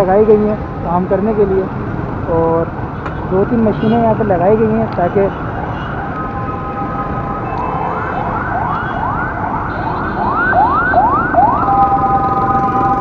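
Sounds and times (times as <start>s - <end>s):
street traffic: 0.0s - 13.0s
electronic siren: 5.6s - 13.0s.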